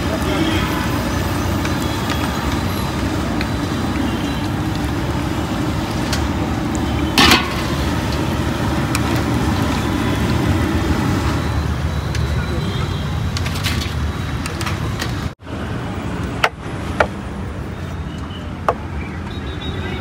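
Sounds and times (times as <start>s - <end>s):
oil sizzling while deep-frying: 0.0s - 12.2s
gas burner roar: 0.0s - 15.3s.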